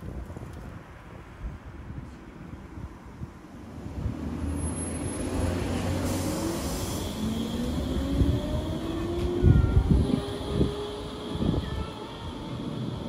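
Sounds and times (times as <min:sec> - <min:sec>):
railcar traction whine: 0:03.4 - 0:13.0.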